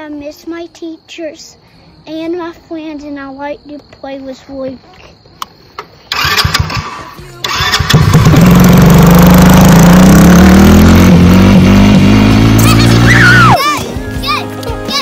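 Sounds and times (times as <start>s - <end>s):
small engine pulling away: 6.1s - 13.6s
music: 7.0s - 7.8s, 12.6s - 15.0s.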